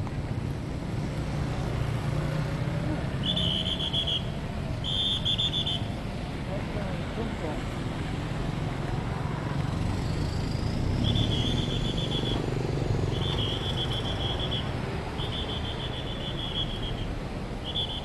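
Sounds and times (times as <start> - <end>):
cars and motorbikes on wet road: 0.0 - 18.0
pea whistle trilling blasts: 3.2 - 5.9, 11.0 - 12.4, 13.1 - 18.0.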